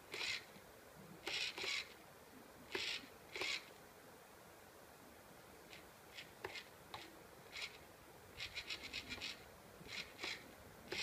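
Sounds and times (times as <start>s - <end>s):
servo whirring in high-pitched bursts: 0.1s - 0.5s, 1.2s - 2.0s, 2.7s - 3.7s, 7.5s - 7.8s, 8.4s - 11.0s.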